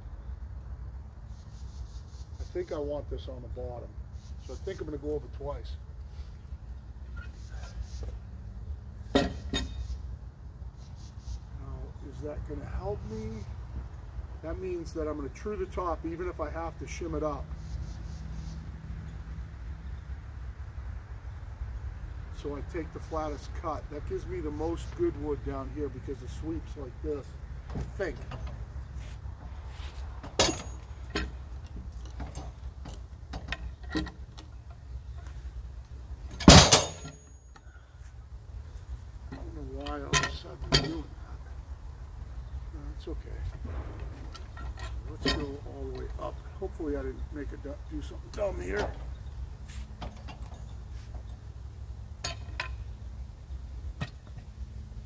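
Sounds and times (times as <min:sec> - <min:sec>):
metal clanks and knocks: 0:09.0 - 0:09.9, 0:27.6 - 0:28.7, 0:29.4 - 0:35.4, 0:36.2 - 0:37.6, 0:39.2 - 0:41.2, 0:43.3 - 0:46.6, 0:48.0 - 0:49.2, 0:50.0 - 0:51.4, 0:52.2 - 0:52.9, 0:53.9 - 0:54.5
engine idling low rumble: 0:19.1 - 0:55.0
short high metallic ring: 0:30.4 - 0:31.3, 0:36.4 - 0:37.6
steady low rumble: 0:37.8 - 0:49.6.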